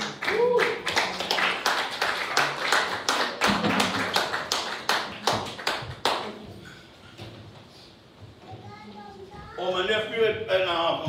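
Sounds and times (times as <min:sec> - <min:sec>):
small group clapping: 0:00.0 - 0:06.5.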